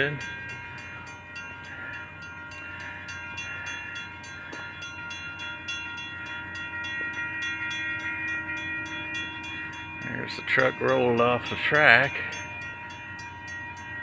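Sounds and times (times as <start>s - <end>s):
railroad crossing bell ringing: 0.0s - 14.0s.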